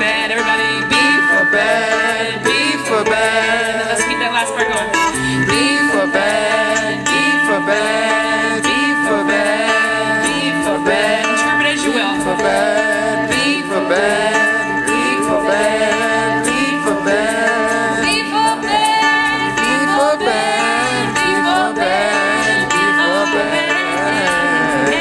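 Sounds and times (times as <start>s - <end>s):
plucked string instrument: 0.0s - 25.0s.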